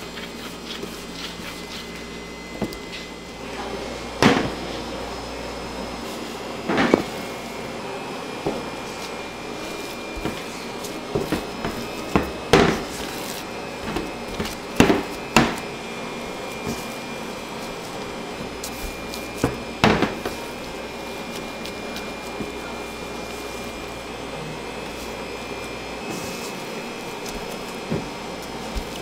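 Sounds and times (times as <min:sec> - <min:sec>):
machine hum with high whine: 0:00.0 - 0:29.0
utensils knocking and clunking: 0:08.4 - 0:20.8.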